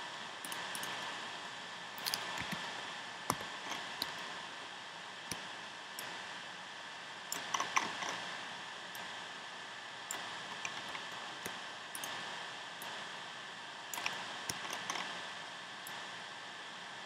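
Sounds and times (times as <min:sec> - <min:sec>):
microphone hiss: 0:00.0 - 0:17.0
mouse and keyboard clicks: 0:02.0 - 0:04.2, 0:07.3 - 0:08.2, 0:10.1 - 0:12.2, 0:14.0 - 0:15.2.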